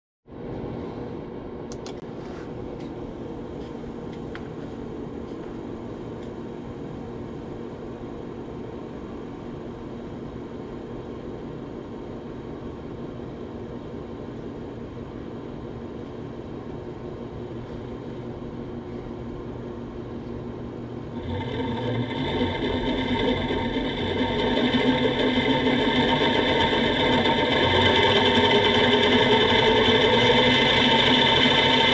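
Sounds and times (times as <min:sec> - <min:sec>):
gear rig mechanical whir: 0:21.1 - 0:31.9
high-pitched gear whine: 0:21.2 - 0:31.9.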